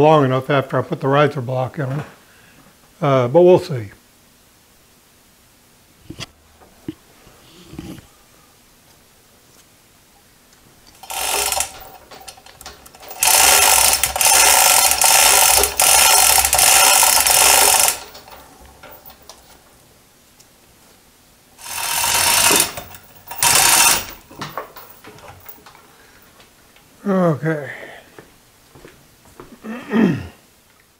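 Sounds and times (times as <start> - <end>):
hoist chain rattling: 10.9 - 19.6, 21.6 - 25.8.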